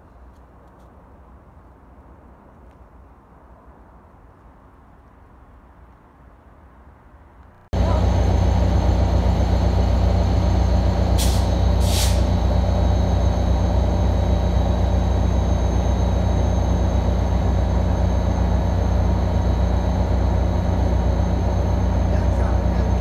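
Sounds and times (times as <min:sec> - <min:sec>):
diesel locomotive idling: 0:07.8 - 0:23.0
air release hisses: 0:11.2 - 0:12.3.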